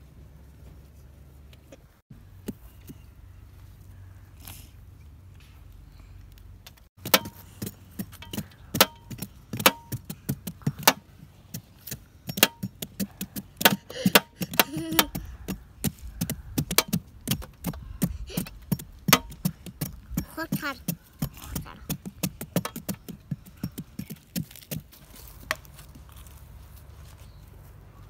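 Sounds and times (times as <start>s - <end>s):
knife chopping and scraping pumpkin: 7.0s - 26.3s.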